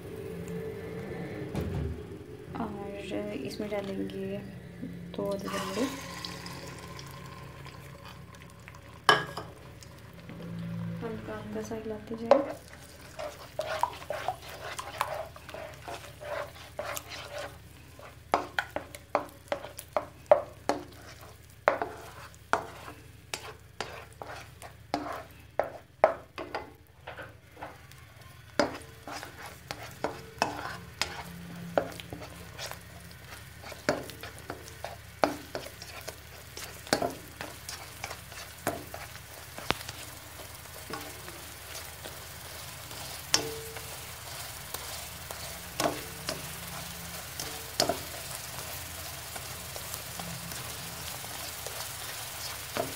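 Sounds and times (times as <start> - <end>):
egg sizzling: 2.1 - 52.9
spatula scraping and tapping wok: 5.2 - 52.9.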